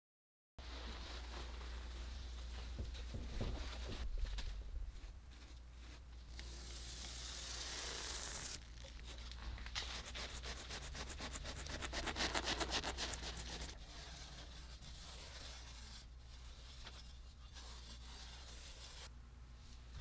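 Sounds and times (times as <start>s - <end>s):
pen rubbing on blanket: 9.9s - 16.0s.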